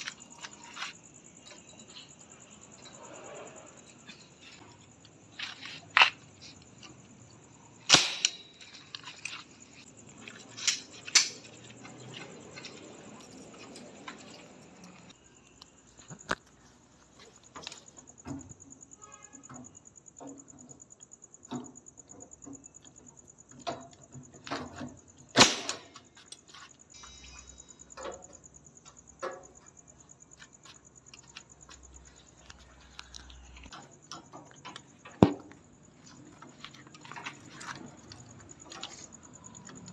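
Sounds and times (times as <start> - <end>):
nail gun firing: 7.9 - 8.4, 25.4 - 25.9.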